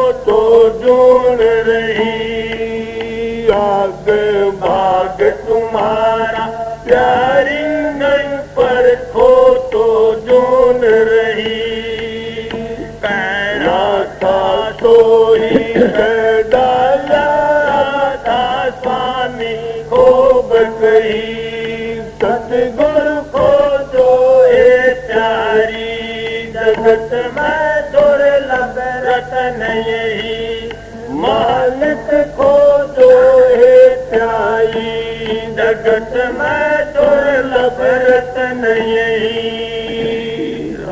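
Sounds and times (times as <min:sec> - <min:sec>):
man singing chant-like melody: 0:00.0 - 0:40.9
plucked string drone: 0:14.6 - 0:17.9.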